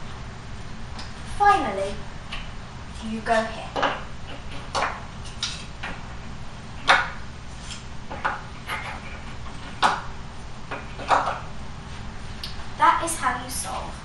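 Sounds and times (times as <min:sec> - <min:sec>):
cards tapping on pegboard: 0:03.7 - 0:06.0, 0:06.8 - 0:07.2, 0:08.1 - 0:10.1, 0:10.7 - 0:11.5.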